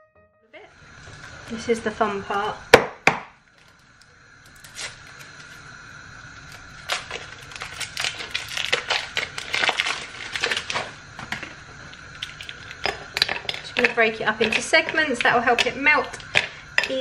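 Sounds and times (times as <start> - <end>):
foil wrapper crinkling: 3.6 - 5.7, 6.4 - 11.0.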